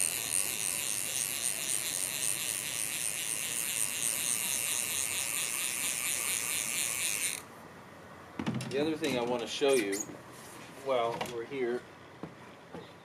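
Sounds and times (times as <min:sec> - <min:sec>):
fishing reel ratchet clicking: 0:00.0 - 0:07.4.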